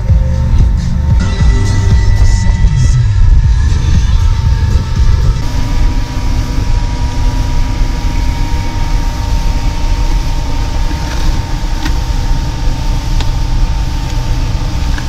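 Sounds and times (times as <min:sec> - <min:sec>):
outboard motor running: 0:00.0 - 0:15.0
thin steady whine: 0:00.0 - 0:15.0
wind and water rushing: 0:03.0 - 0:15.0.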